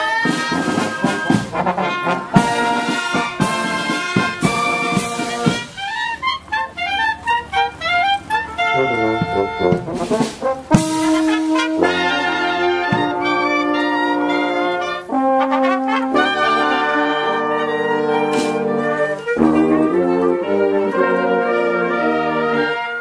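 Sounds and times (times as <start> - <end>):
marching brass band playing: 0.0 - 23.0
percussion strokes: 0.0 - 23.0.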